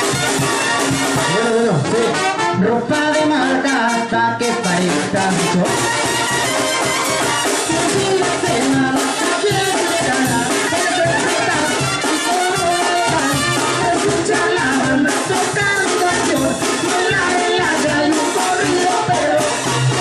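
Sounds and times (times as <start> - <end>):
bass drum and cymbals: 0.0 - 2.0, 4.7 - 20.0
sousaphone bass line: 0.0 - 20.0
trumpets and trombones: 0.0 - 20.0.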